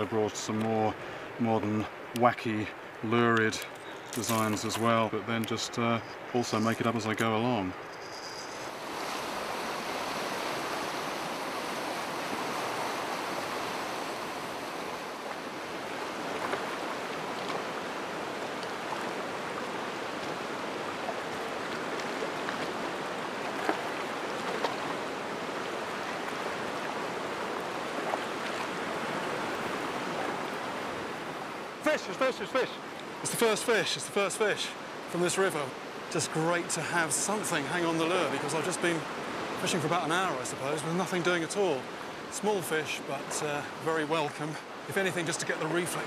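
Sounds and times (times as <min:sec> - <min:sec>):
river rapids rushing over rocks: 0:08.7 - 0:41.2.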